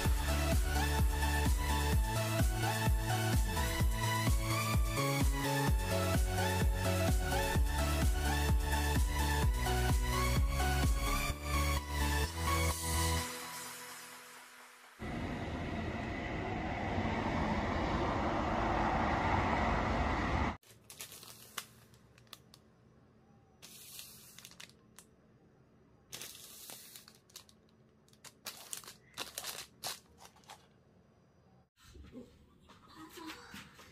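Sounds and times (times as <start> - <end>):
loud steady rushing noise: 14.8 - 20.6
plastic wrappers crinkling: 20.6 - 22.7, 23.6 - 25.1, 26.1 - 30.7.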